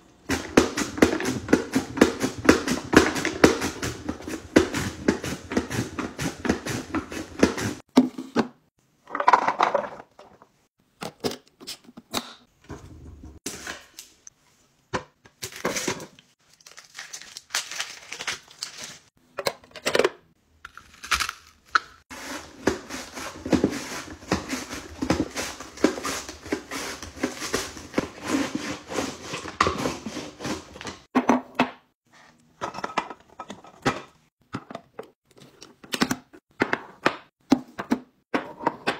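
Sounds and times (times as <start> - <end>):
plastic parts clicking and knocking: 7.9 - 12.4, 19.3 - 22.0
mandoline slicer scraping strokes: 22.1 - 30.7.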